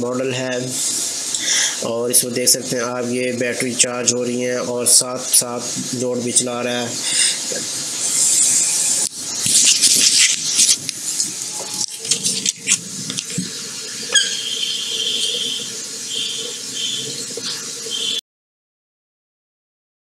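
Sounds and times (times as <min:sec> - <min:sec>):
high squeal: 0:11.5 - 0:12.1, 0:14.0 - 0:18.2.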